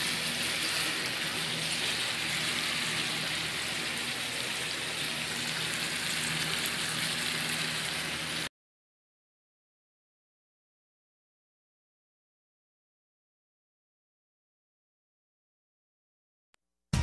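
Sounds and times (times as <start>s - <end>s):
food sizzling in a frying pan: 0.0s - 8.5s.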